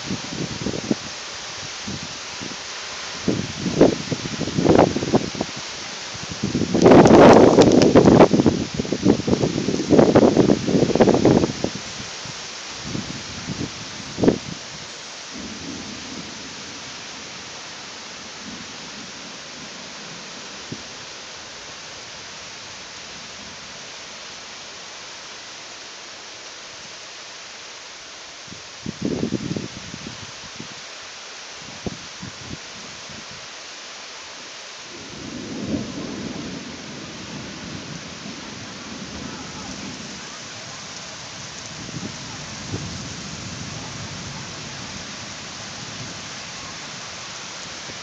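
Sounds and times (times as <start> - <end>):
heavy rain hissing: 0.0 - 48.0
thunder rumbling: 6.3 - 11.8, 15.3 - 17.4, 34.9 - 48.0.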